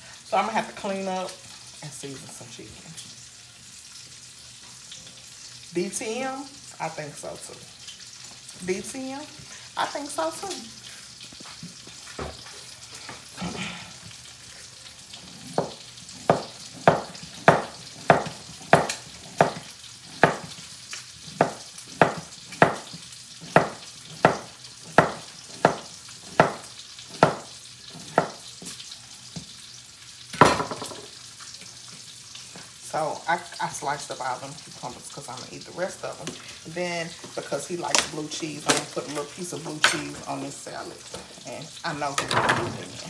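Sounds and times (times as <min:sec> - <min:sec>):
faint pan sizzle: 0:00.0 - 0:43.0
knife chopping on cutting board: 0:15.5 - 0:20.6, 0:21.3 - 0:28.4.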